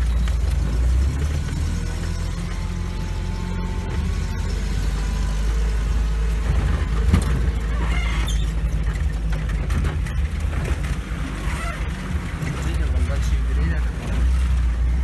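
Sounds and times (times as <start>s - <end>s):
vehicle engine driving slowly: 0.0s - 15.0s
vehicle thump: 6.4s - 10.9s.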